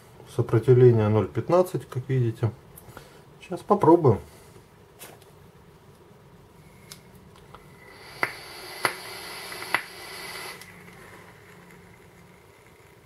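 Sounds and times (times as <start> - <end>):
vape coil hissing and sizzling: 7.7 - 13.0
sharp pops from hot coil: 8.1 - 10.8.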